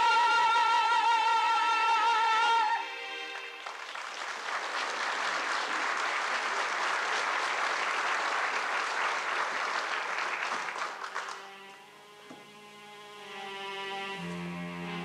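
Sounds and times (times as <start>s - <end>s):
soft string music: 0.0s - 3.9s, 11.2s - 15.0s
theatre audience applauding: 3.2s - 11.8s.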